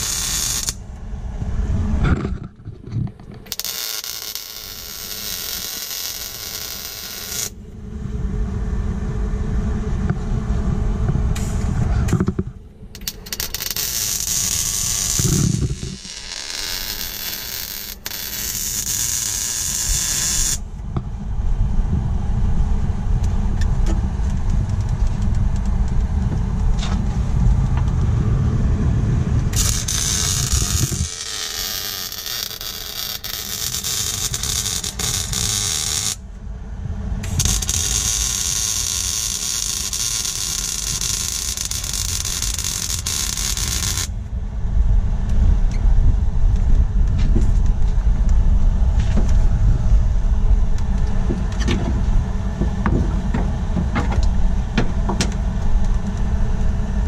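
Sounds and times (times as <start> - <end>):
electric welding hiss: 0.0 - 0.8, 3.5 - 7.6, 13.0 - 20.6, 29.5 - 36.2, 37.3 - 44.1
low rumble: 0.0 - 3.8, 4.4 - 57.0.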